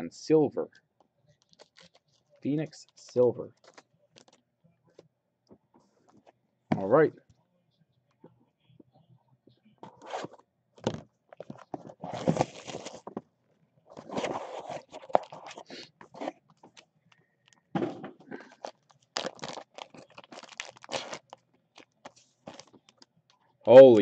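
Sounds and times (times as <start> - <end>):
plastic wrapping crinkling: 1.4 - 2.2, 2.9 - 4.4, 11.4 - 13.2, 18.4 - 23.1
hands scraping cardboard boxes: 14.0 - 16.3.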